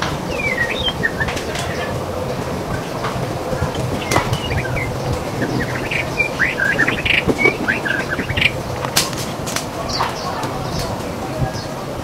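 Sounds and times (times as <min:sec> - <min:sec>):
low hum: 0:00.0 - 0:10.2
background hiss: 0:00.0 - 0:12.0
bird singing whistled notes: 0:00.3 - 0:02.0, 0:03.6 - 0:08.7.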